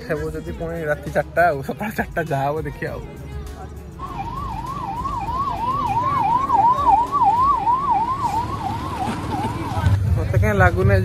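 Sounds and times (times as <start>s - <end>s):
low traffic rumble: 0.0s - 11.0s
ambulance siren yelping: 4.0s - 10.0s.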